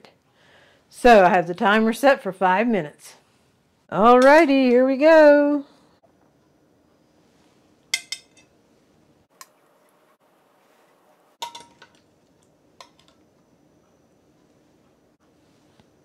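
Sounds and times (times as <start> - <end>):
metal tongs clinking on glass: 8.0 - 8.5.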